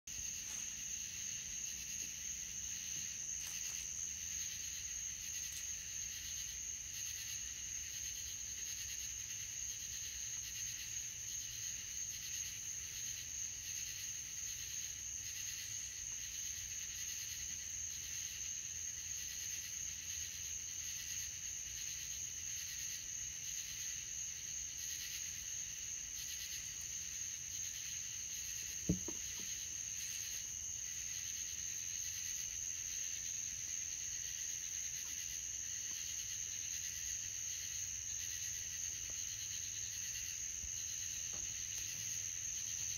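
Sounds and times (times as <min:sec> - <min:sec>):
crickets trilling: 0:00.1 - 0:42.9
low thump: 0:28.9 - 0:29.5.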